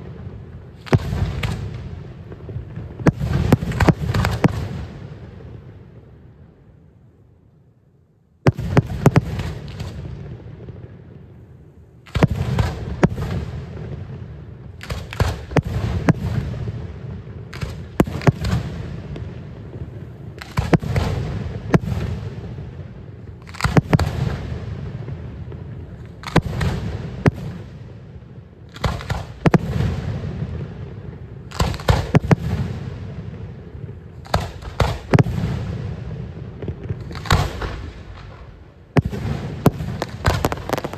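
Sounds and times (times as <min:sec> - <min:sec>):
fireworks bangs: 0:00.0 - 0:05.7, 0:12.1 - 0:28.0, 0:28.7 - 0:40.9
rolling rumble: 0:39.9 - 0:40.9.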